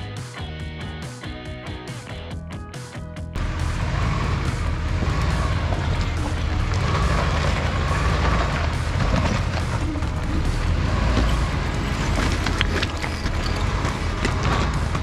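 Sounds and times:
engine deep rumble: 0:03.4 - 0:15.0
rocks clicking and knocking: 0:05.0 - 0:15.0.

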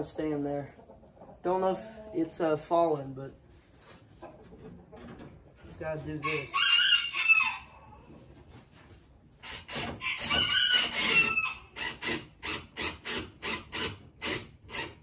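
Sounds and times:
rooster crowing: 0:06.5 - 0:07.9, 0:10.0 - 0:11.7.

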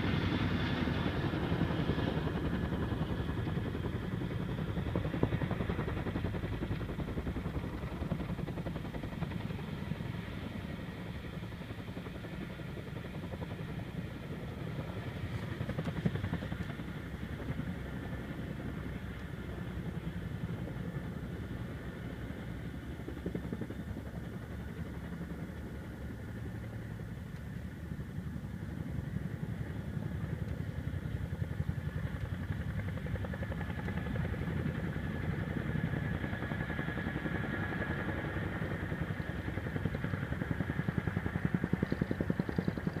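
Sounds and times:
helicopter high whine: 0:00.0 - 0:43.0
helicopter rotors thumping: 0:00.0 - 0:43.0.

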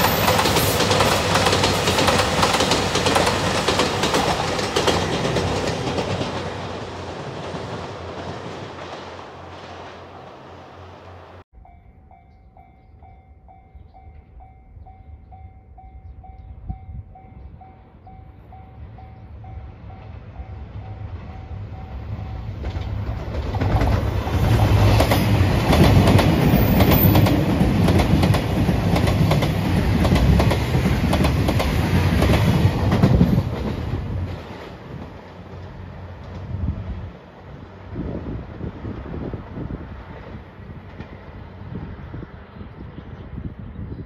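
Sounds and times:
wheels clacking over rail joints: 0:00.0 - 0:11.4, 0:20.8 - 0:36.5
diesel train passing: 0:00.0 - 0:43.7.

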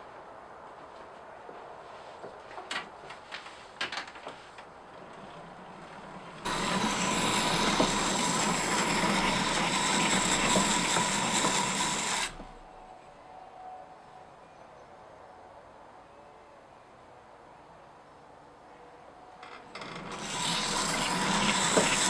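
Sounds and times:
knife grinding on wheel: 0:06.4 - 0:12.6, 0:19.8 - 0:22.0.

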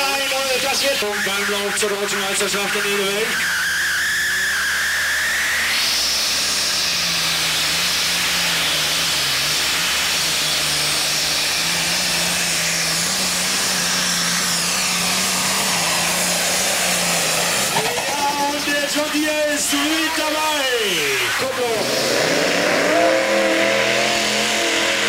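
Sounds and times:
low wavering drone: 0:03.2 - 0:18.3, 0:21.3 - 0:25.0
tractor engine under full load: 0:05.8 - 0:25.0.

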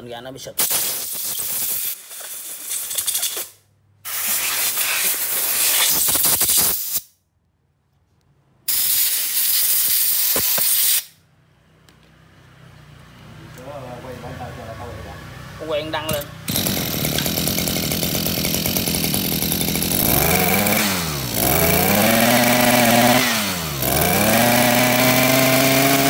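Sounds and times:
compressed air blow gun hissing: 0:04.1 - 0:07.1, 0:08.7 - 0:11.1.

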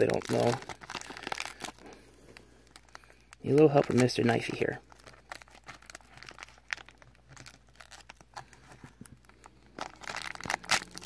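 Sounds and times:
bag tearing open: 0:00.0 - 0:01.8, 0:09.7 - 0:11.0
plastic bag crinkling: 0:00.0 - 0:11.0.

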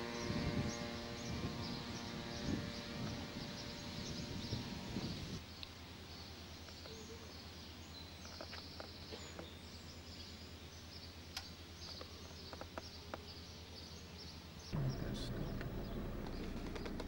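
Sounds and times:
steady low hum: 0:00.0 - 0:06.4, 0:14.7 - 0:17.0
birds chirping: 0:00.0 - 0:17.0.

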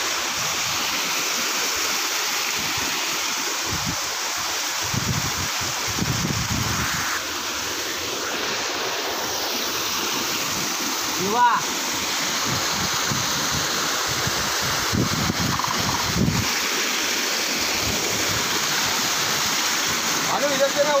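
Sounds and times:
flowing water rushing: 0:00.0 - 0:21.0
wind buffeting on microphone: 0:04.8 - 0:07.2, 0:12.4 - 0:16.5.

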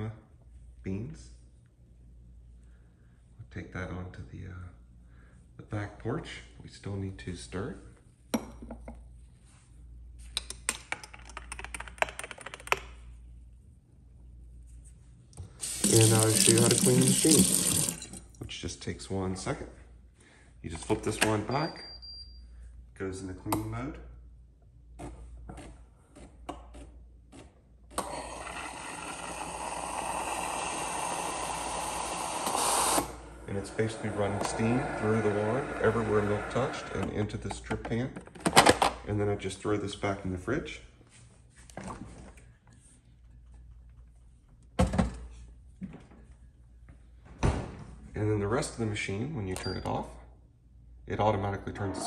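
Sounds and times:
steam hissing: 0:28.7 - 0:37.0.

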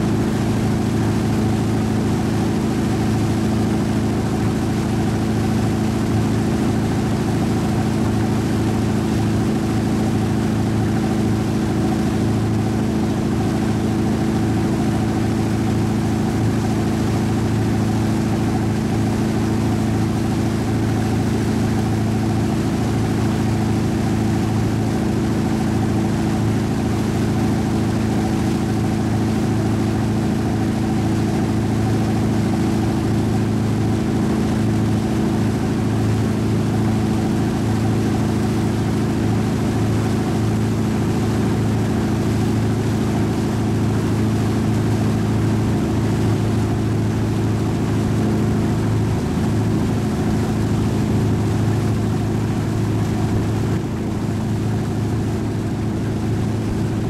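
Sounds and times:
motorboat engine humming: 0:00.0 - 0:57.0.

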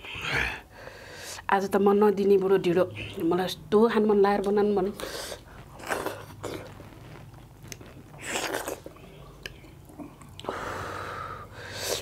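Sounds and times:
chewing and wet mouth clicks: 0:07.6 - 0:10.5
loud slurp: 0:07.7 - 0:09.2.

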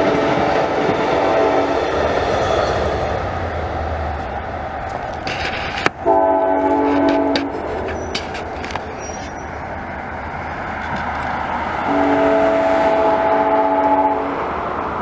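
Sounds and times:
moving train rumble: 0:00.0 - 0:15.0
train air horn blasts: 0:01.1 - 0:01.7, 0:06.0 - 0:08.0, 0:11.8 - 0:14.5.

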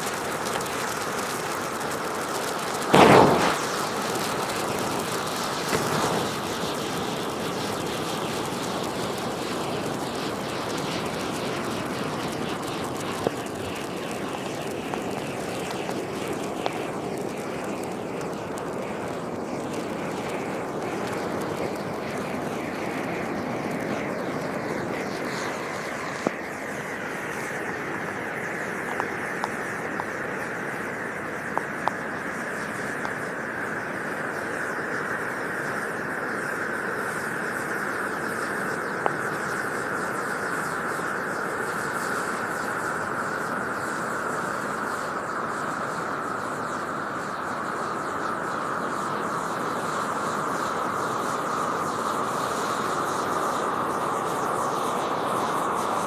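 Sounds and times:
signal flare hissing: 0:00.0 - 0:56.0
sharp pops: 0:02.7 - 0:17.0.

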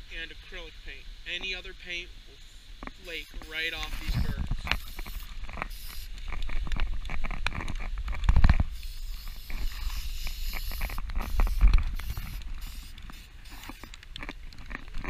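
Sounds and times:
spray can hissing: 0:03.0 - 0:06.1, 0:08.7 - 0:14.0.

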